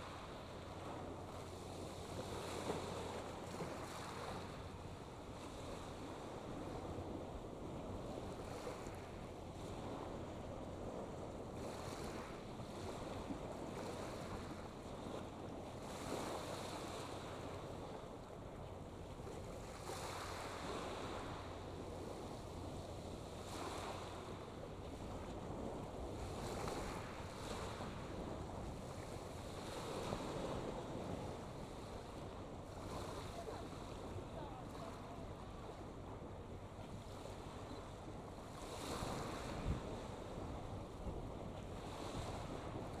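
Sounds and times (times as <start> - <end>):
wind buffeting microphone: 0.0 - 43.0.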